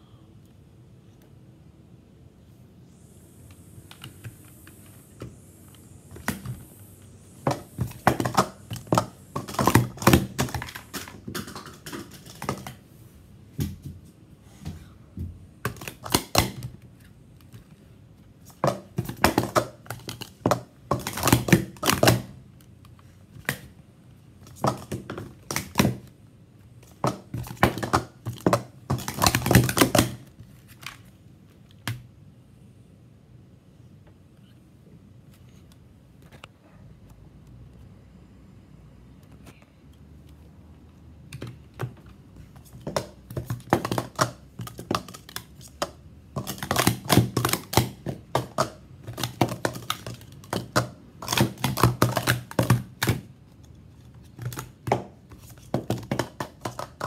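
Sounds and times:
plastic cups clacking: 0:07.4 - 0:12.8, 0:15.6 - 0:16.8, 0:18.4 - 0:22.4, 0:24.4 - 0:26.1, 0:26.8 - 0:30.3, 0:41.4 - 0:53.4, 0:54.1 - 0:57.0.

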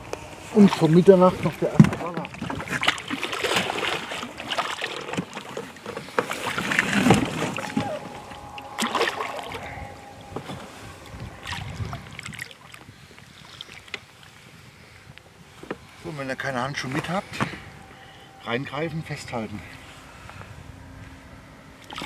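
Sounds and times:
water splashing: 0:00.5 - 0:14.4
fish thrashing in water: 0:00.6 - 0:14.3.

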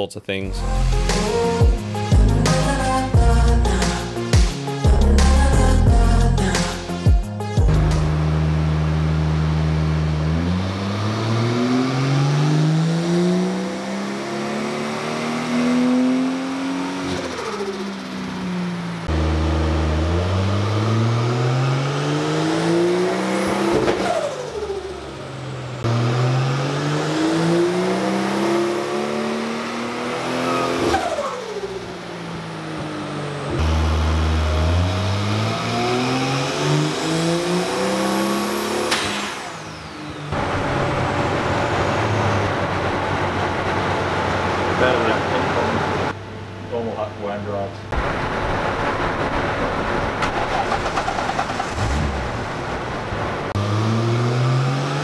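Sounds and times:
engine revving at full throttle: 0:07.7 - 0:46.2, 0:50.7 - 0:55.0.

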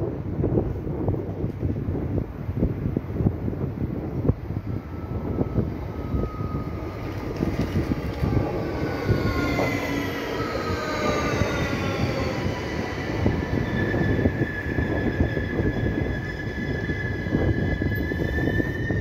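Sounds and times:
train wheels rumbling: 0:00.0 - 0:19.0
whining tones falling in pitch: 0:04.2 - 0:19.0.

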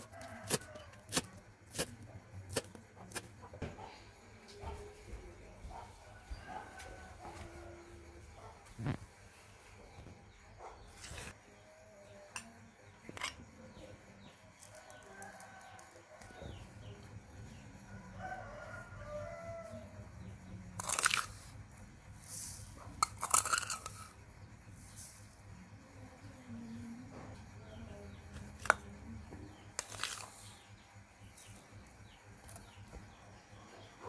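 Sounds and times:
rooster crowing: 0:00.0 - 0:01.2, 0:06.1 - 0:08.2, 0:17.9 - 0:20.0
metal spoon scooping granules: 0:20.8 - 0:21.5, 0:22.2 - 0:24.2, 0:29.8 - 0:30.6
bowls scraping and rustling: 0:20.8 - 0:25.4, 0:29.8 - 0:30.7.

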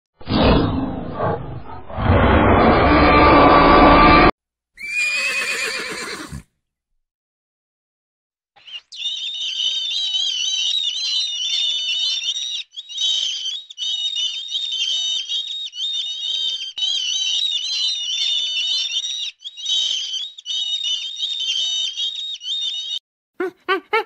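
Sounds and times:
seabirds calling: 0:08.6 - 0:24.0.

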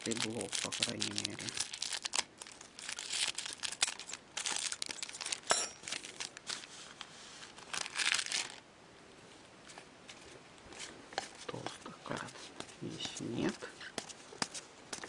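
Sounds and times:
foil wrapper crinkling and tearing: 0:00.0 - 0:08.6.

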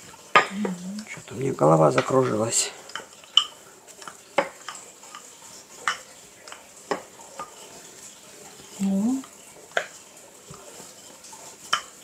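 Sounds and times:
faint steady hiss: 0:00.0 - 0:12.0
kitchen utensils and dishes clicking: 0:01.9 - 0:07.8.

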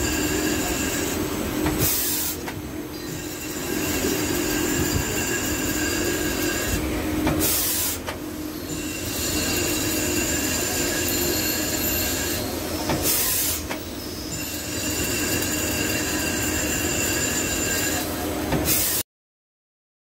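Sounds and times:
lathe tool squealing: 0:00.0 - 0:01.2, 0:03.0 - 0:06.8, 0:08.6 - 0:12.5, 0:13.1 - 0:18.1.

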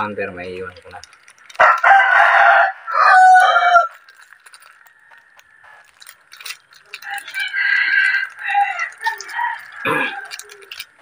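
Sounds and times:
rooster crowing: 0:01.6 - 0:04.0, 0:07.0 - 0:10.8.

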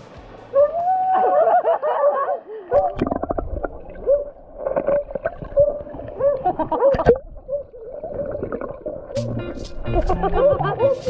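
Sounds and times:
stream water gurgling: 0:02.7 - 0:11.0.

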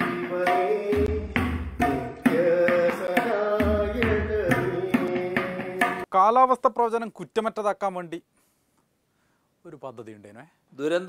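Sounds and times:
tabla strokes: 0:00.0 - 0:06.1.

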